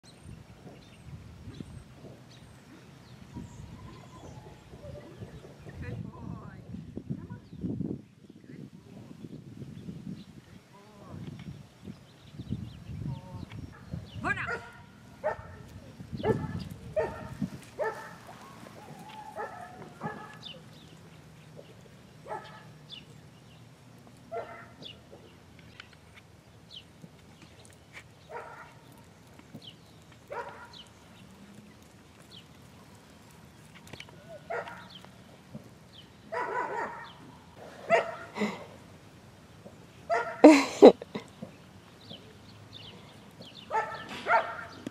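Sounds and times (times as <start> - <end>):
dog barking: 14.5 - 15.6, 16.2 - 18.2, 19.3 - 20.4, 22.3 - 22.7, 24.3 - 24.8, 28.3 - 28.8, 30.3 - 30.8, 34.5 - 34.9, 36.3 - 37.2, 37.8 - 38.4, 40.1 - 40.5, 43.7 - 44.8.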